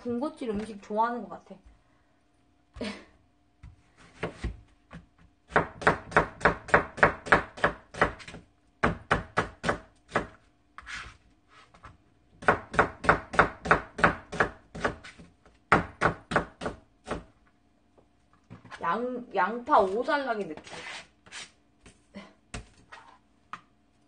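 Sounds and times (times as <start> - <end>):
knife slicing onion on cutting board: 3.6 - 17.3.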